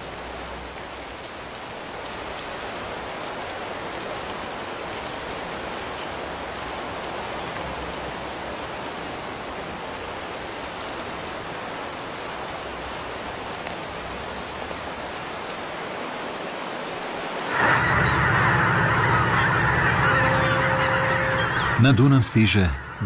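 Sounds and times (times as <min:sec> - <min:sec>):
steady rain: 0:00.0 - 0:23.0
geese honking: 0:17.5 - 0:23.0.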